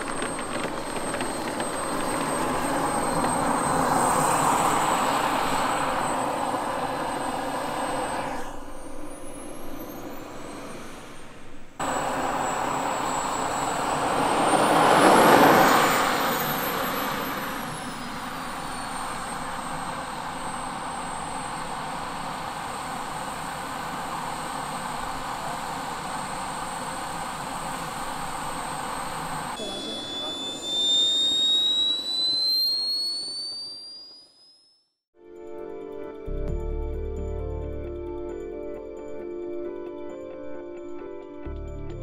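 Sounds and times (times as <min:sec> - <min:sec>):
jet turbine whine: 0:00.0 - 0:34.7.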